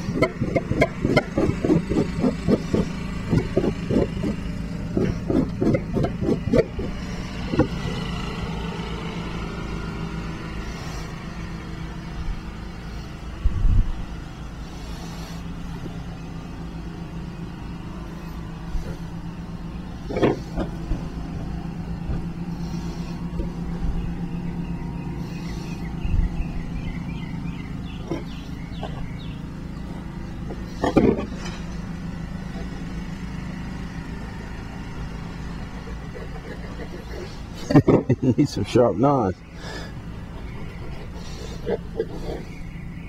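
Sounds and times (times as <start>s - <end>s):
low mechanical hum: 0.0s - 43.0s.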